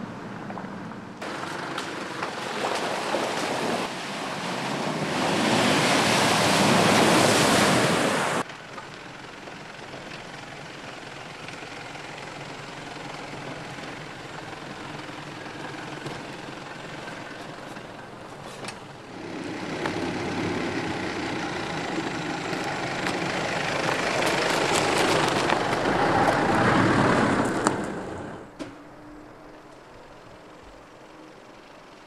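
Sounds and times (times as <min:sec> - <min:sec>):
vehicle engine at low revs: 0:08.4 - 0:32.0
twigs cracking under tyres: 0:21.7 - 0:28.0
tyre noise on dirt: 0:22.5 - 0:28.8.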